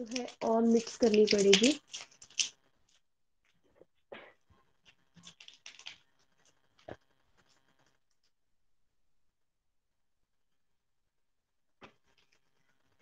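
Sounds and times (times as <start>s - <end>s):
wrapper crinkling and tearing: 0.0s - 3.0s, 4.8s - 7.0s.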